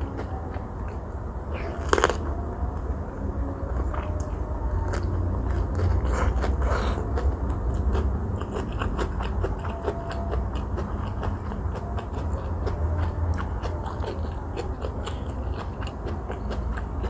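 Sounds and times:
close chewing with wet clicks: 4.9 - 17.0.

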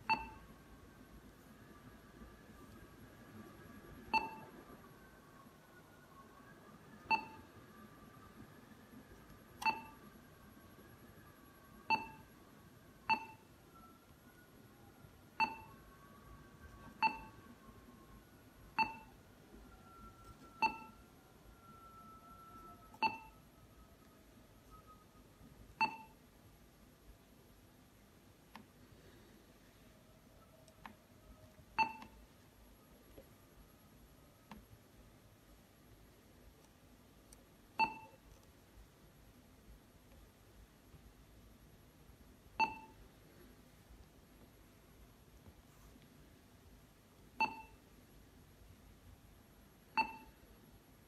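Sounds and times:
touchscreen key beeps: 0.0 - 0.4, 9.6 - 10.0, 13.1 - 13.4, 20.1 - 21.0, 22.9 - 23.3, 25.8 - 26.2, 31.8 - 32.2, 37.8 - 38.2, 42.6 - 43.0, 47.4 - 47.8, 50.0 - 50.4.

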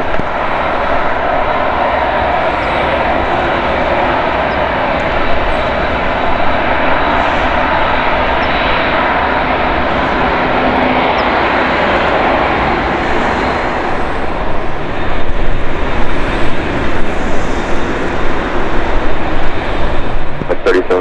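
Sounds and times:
jet engine rumble and hiss: 0.0 - 21.0.

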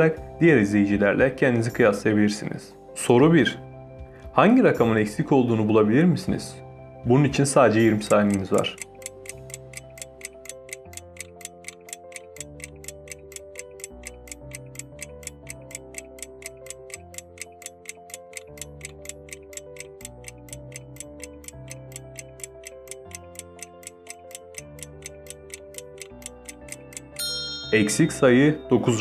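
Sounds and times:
soft background music: 0.0 - 29.0
clock-like ticking: 7.8 - 27.3.

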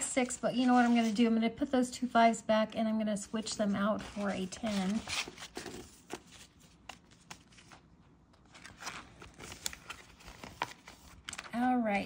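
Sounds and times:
paper banknotes rustling: 3.6 - 11.5.

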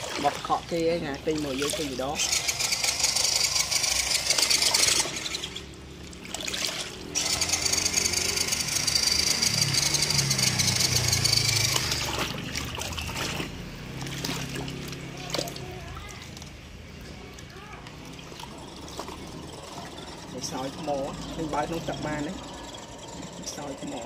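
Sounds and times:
water churning and splashing: 0.0 - 24.0
electric motor whirring: 1.9 - 5.8, 7.0 - 12.2.

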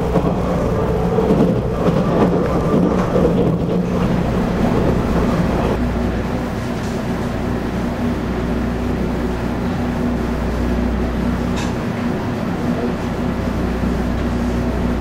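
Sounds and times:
electric train rumble and hum: 0.0 - 15.0.

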